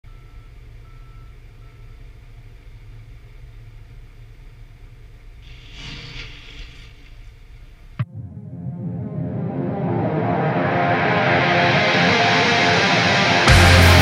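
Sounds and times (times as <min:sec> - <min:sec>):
low outdoor rumble: 0:00.0 - 0:09.1
short faint beeps: 0:00.1 - 0:02.0
brief hiss: 0:05.4 - 0:08.0.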